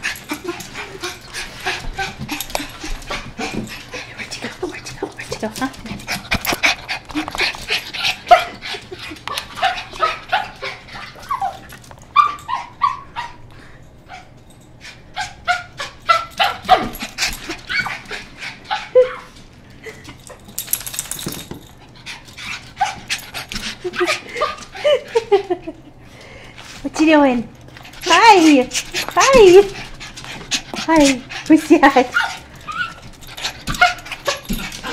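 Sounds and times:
small dog whining and yipping: 11.2 - 13.4, 32.2 - 33.0.

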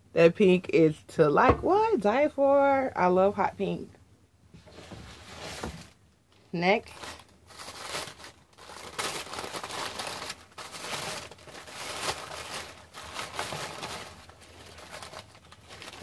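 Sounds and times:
packaging rustling and crinkling: 4.6 - 16.0.

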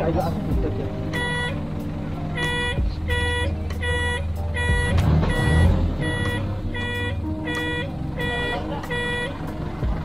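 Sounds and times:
truck engine running: 0.0 - 10.0
truck back-up alarm beeping: 1.0 - 9.6.

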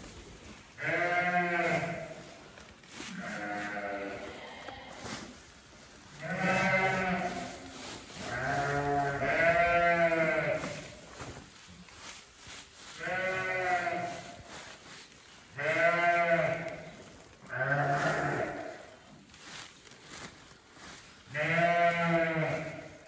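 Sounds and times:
sheep bleating: 0.8 - 2.2, 3.1 - 5.0, 6.2 - 7.6, 8.2 - 10.8, 13.0 - 14.4, 15.6 - 16.9, 17.5 - 18.9, 21.3 - 23.0.

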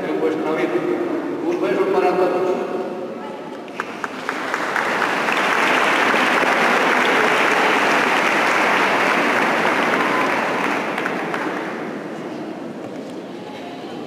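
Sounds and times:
crowd applauding: 3.7 - 12.2.

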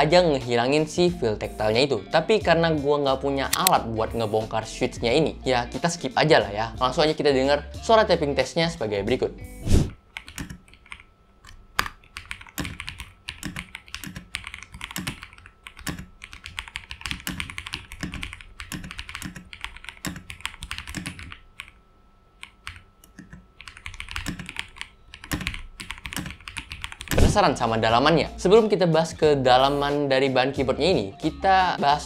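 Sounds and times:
faint fan running: 0.0 - 31.9
mechanical keyboard typing: 3.5 - 3.8, 10.1 - 21.8, 22.4 - 27.3.

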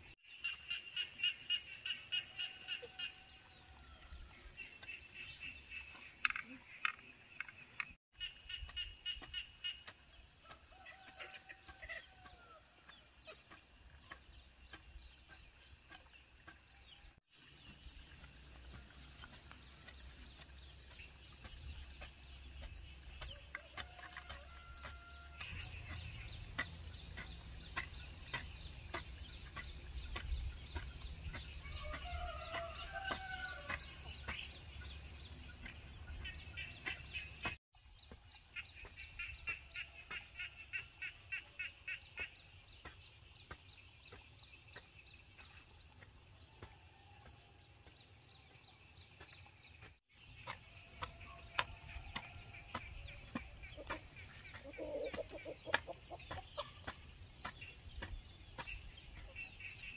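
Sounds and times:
chickens clucking: 50.4 - 59.9.

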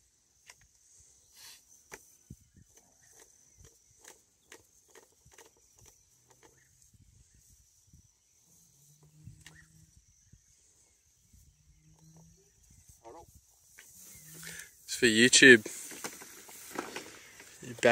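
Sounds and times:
steady high hiss: 12.7 - 17.9.

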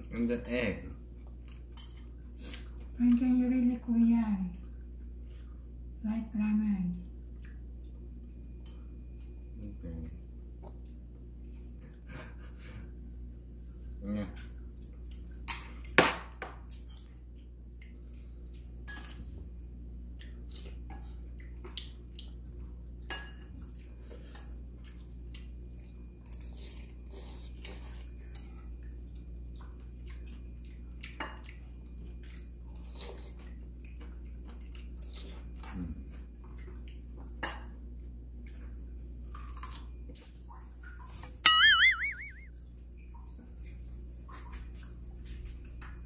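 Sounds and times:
chewing: 1.1 - 3.0, 7.0 - 9.4, 10.0 - 16.0, 16.6 - 37.4, 38.0 - 41.3
cutlery clinking on dishes: 18.8 - 19.2, 23.1 - 23.5.

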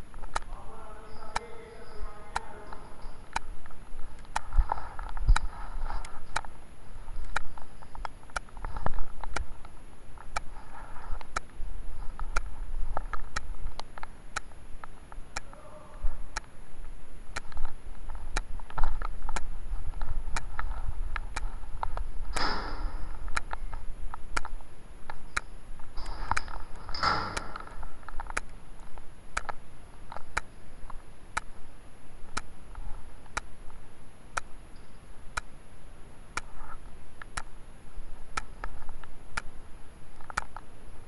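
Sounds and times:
steady low rumble: 0.0 - 41.0
sharp clicks: 0.1 - 6.5, 7.2 - 10.5, 11.2 - 15.6, 17.4 - 31.6, 37.2 - 37.5, 40.2 - 40.7.

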